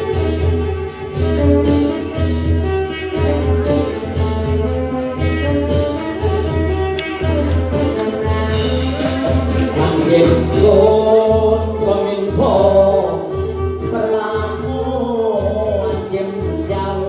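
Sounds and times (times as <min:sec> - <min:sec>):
melody instruments: 0:00.0 - 0:17.0
steady drum beat: 0:00.0 - 0:17.0
man singing into a microphone: 0:09.6 - 0:17.0.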